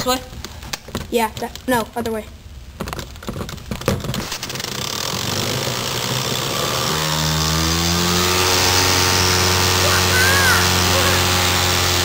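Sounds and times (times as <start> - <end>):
small air engine buzzing hum: 4.2 - 12.0.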